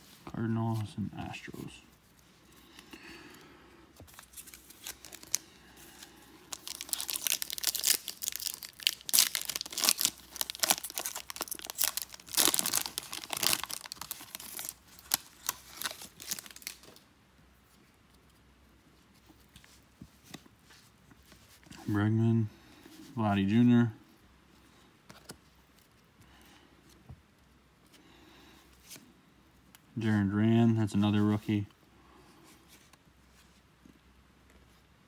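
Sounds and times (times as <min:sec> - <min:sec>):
foil wrapper tearing and crinkling: 0:04.3 - 0:05.5, 0:06.5 - 0:17.0.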